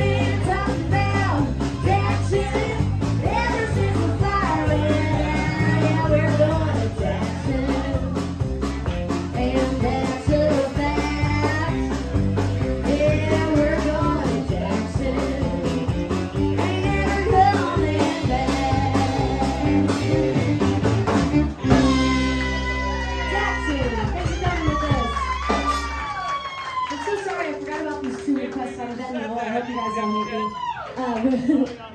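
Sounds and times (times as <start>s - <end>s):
woman singing: 0.0s - 8.5s, 9.1s - 20.8s
electric guitar: 0.0s - 30.8s
drums: 0.0s - 31.9s.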